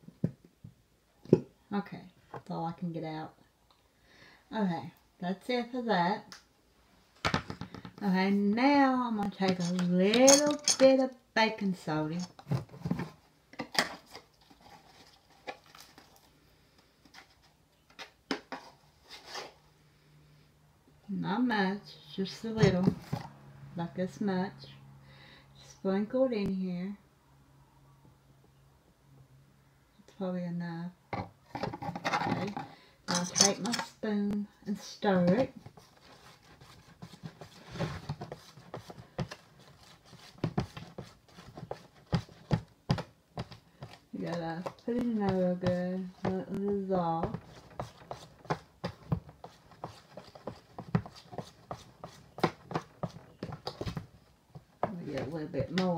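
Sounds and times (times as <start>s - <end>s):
spoon scraping plastic tub: 9.4s - 11.0s.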